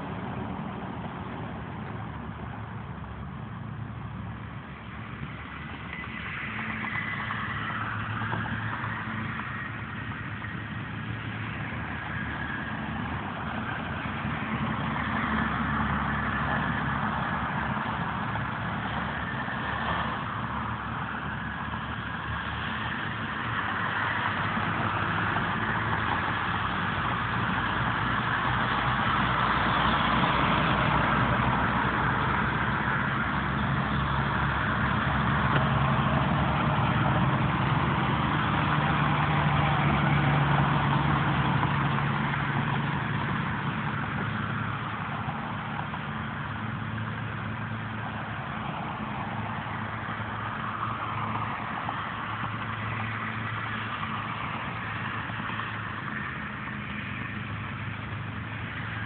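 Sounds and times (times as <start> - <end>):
diesel truck engine droning: 0.0 - 59.0.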